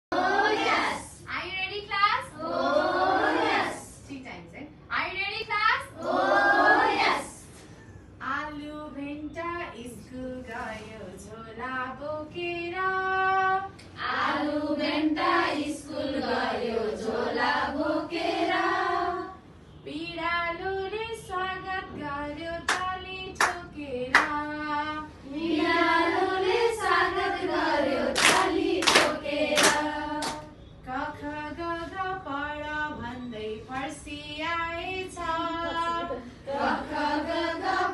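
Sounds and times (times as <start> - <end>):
women singing in unison: 9.0 - 37.9
handclaps: 22.7 - 24.4, 28.2 - 30.4.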